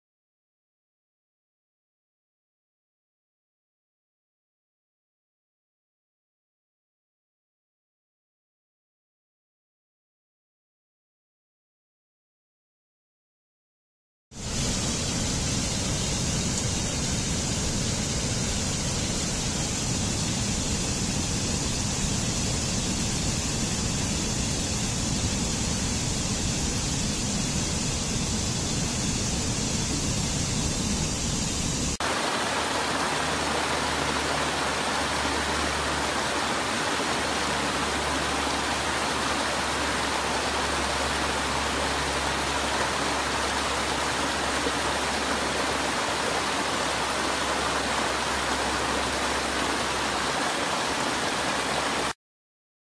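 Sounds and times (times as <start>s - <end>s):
water rushing over rocks: 29.7s - 52.2s.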